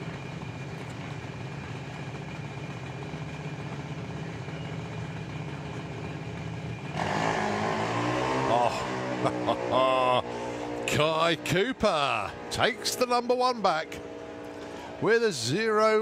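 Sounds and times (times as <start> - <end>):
dragster engine idling: 0.0 - 7.0, 10.5 - 16.0.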